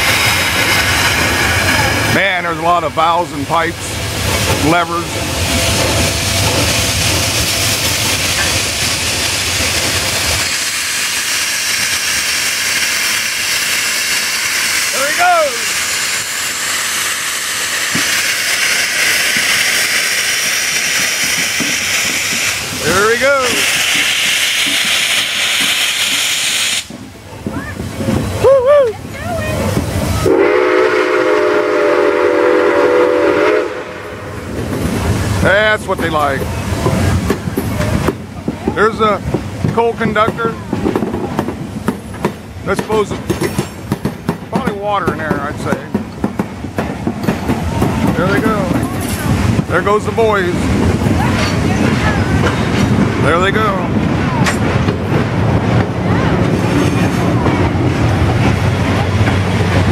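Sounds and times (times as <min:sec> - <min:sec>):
steam hissing: 0:00.0 - 0:27.1
steam locomotive whistle blast: 0:24.5 - 0:26.9, 0:30.2 - 0:34.3.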